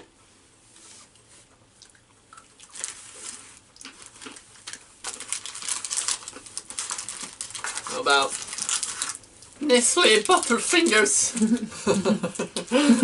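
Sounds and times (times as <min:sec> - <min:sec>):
candy wrappers rustling and crinkling: 0:02.5 - 0:11.7.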